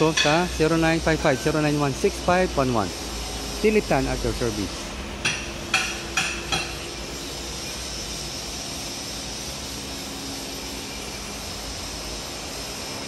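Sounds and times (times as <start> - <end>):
workshop machine hum and hiss: 0.0 - 13.0
sharp metallic knocks: 5.2 - 6.8.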